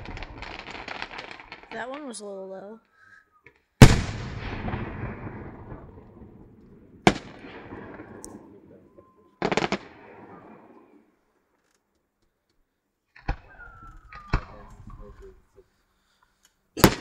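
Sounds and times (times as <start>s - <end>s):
fireworks booming: 0.0s - 2.4s, 3.8s - 11.2s, 13.1s - 15.5s, 16.8s - 17.0s
fireworks crackling pops: 0.0s - 8.5s, 9.4s - 11.0s, 13.1s - 15.4s, 16.4s - 17.0s.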